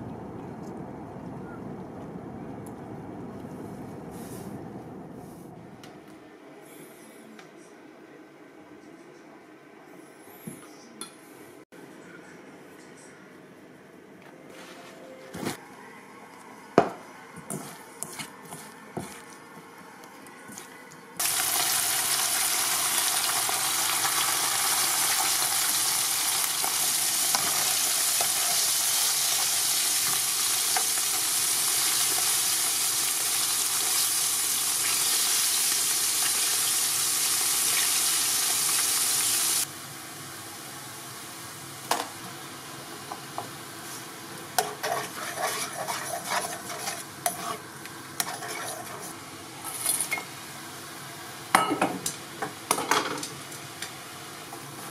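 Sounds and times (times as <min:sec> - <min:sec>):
fish deep-frying in oil: 0:21.2 - 0:40.8.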